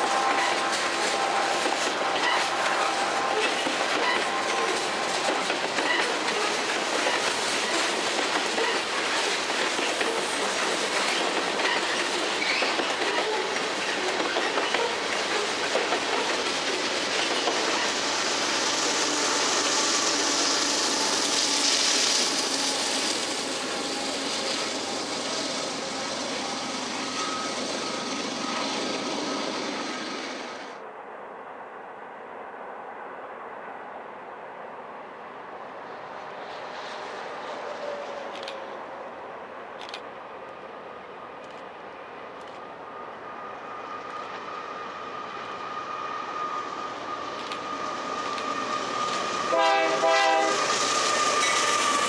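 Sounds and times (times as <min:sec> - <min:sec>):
train wheels clicking over rail joints: 0:00.0 - 0:28.9, 0:46.7 - 0:52.0
locomotives passing: 0:00.0 - 0:30.8, 0:34.5 - 0:52.0
freight train rolling past: 0:00.0 - 0:52.0.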